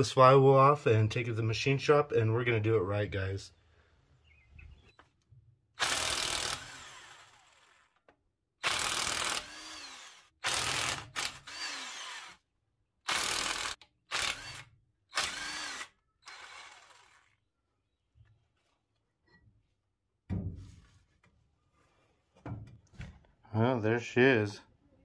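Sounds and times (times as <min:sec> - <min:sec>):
impact wrench bursts: 0:05.8 - 0:07.9, 0:08.6 - 0:12.4, 0:13.1 - 0:17.4.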